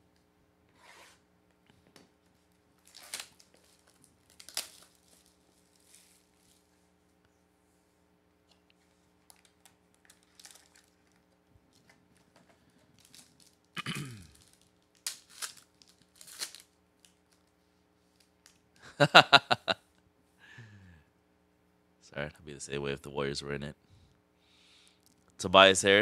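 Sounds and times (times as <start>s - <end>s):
foil card pack crinkling and tearing: 2.8s - 6.6s, 9.2s - 17.6s.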